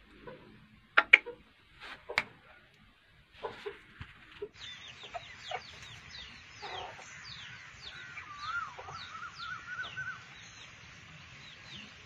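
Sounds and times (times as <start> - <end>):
chickens clucking: 0.0 - 12.0
wavering bird call: 6.6 - 10.3.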